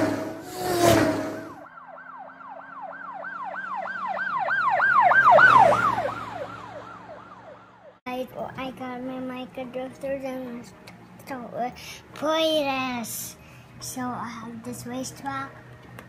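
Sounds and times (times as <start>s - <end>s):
fast yelping siren: 0.6s - 8.0s.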